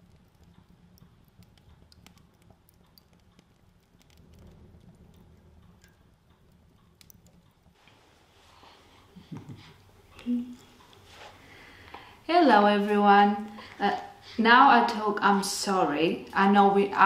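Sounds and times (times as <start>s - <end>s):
faint ticks and clicks: 0.0s - 8.0s, 8.6s - 12.2s.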